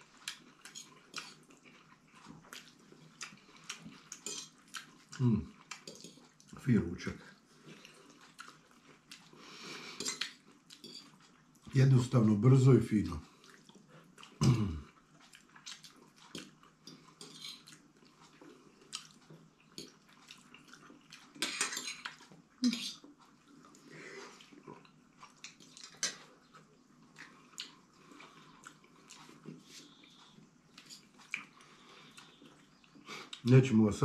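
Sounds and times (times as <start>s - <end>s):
forks clinking on plates: 17.2s - 17.7s.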